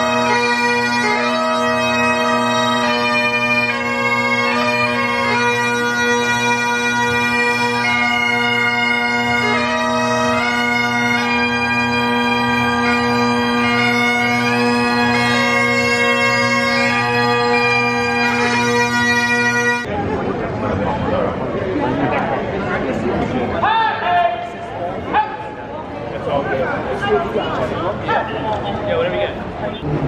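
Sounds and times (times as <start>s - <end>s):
bagpipes playing a tune: 0.0s - 19.9s.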